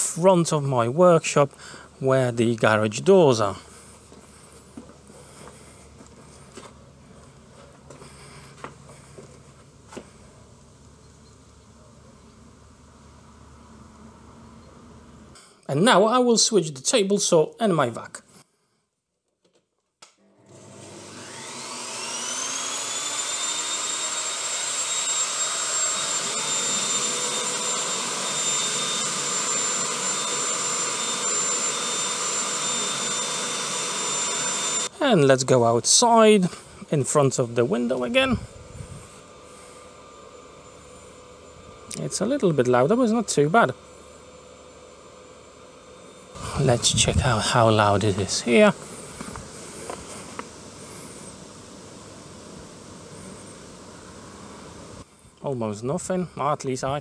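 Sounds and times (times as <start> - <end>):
footsteps on paving: 3.7 - 10.2, 48.8 - 50.5
table saw and vacuum motors whining: 20.2 - 56.2
steady low hum: 26.1 - 57.0.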